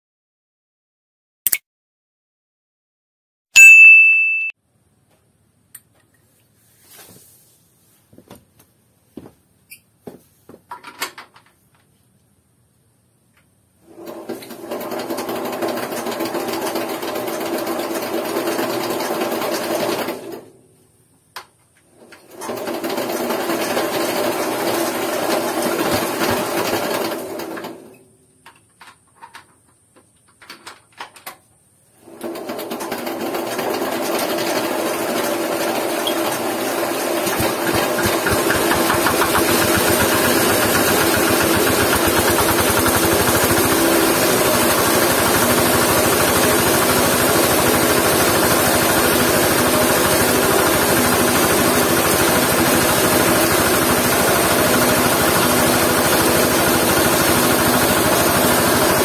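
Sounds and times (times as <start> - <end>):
diesel engine starting and running: 35.5 - 59.0.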